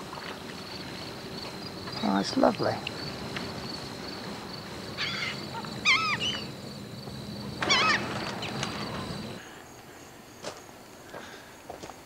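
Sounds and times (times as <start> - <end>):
gulls calling: 0.4 - 9.5.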